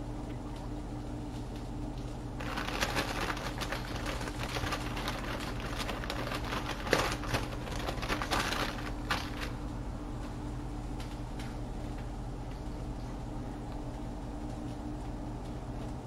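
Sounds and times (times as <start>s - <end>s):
steady low hum: 0.0s - 16.0s
plastic bag crinkling: 2.4s - 9.7s.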